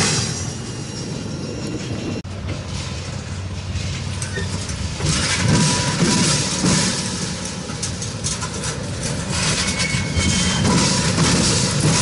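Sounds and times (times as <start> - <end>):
freight train cars rolling: 0.0 - 12.0.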